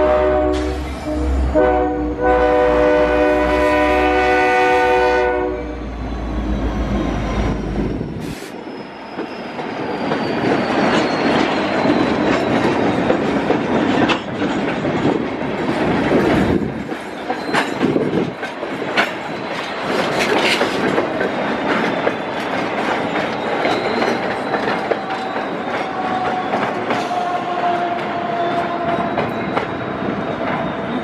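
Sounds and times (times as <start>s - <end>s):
freight train rumbling: 0.0s - 31.0s
wheel squeals: 5.8s - 13.3s, 17.0s - 18.0s, 19.4s - 27.2s.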